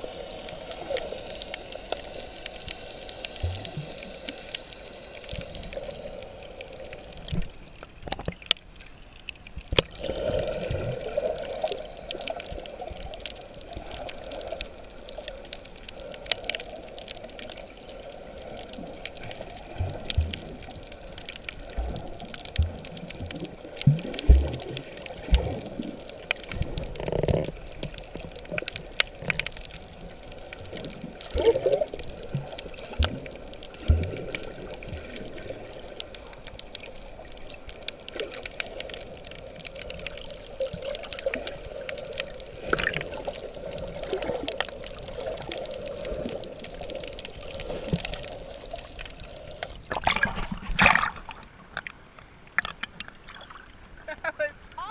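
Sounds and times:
water gurgling underwater: 0.0 - 54.9
loud splash: 49.9 - 51.4.

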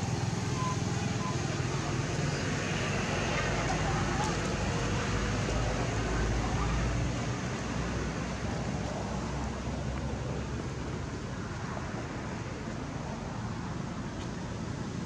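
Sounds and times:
steady outdoor hiss: 0.0 - 15.0.

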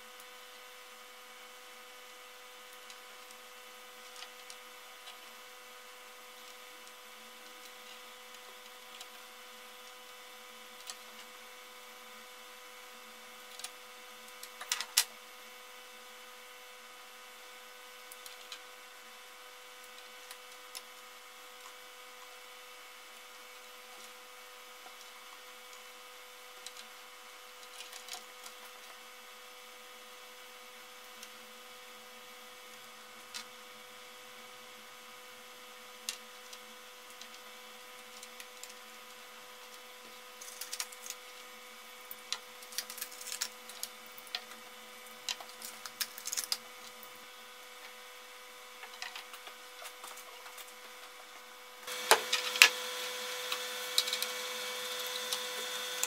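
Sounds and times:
wire clicks and rustles: 4.0 - 5.4, 18.0 - 18.7, 26.5 - 29.0, 36.1 - 48.1, 48.7 - 56.0
steady hum: 30.8 - 56.0.

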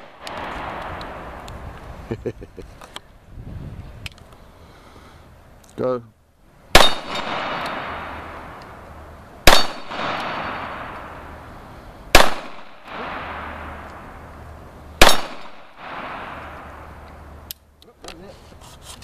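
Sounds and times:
pistol shots: 0.0 - 1.4, 6.7 - 8.8, 9.4 - 11.4, 12.1 - 14.3, 15.0 - 17.1
steel targets ringing: 6.8 - 8.4, 9.5 - 11.2.

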